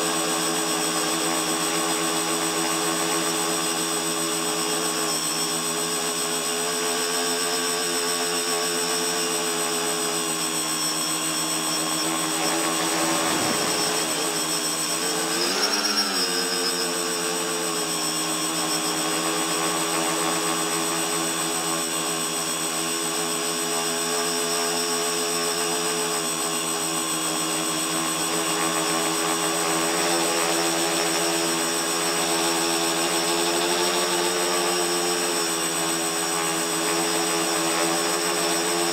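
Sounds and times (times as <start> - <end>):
drone propellers whining: 6.2 - 18.8.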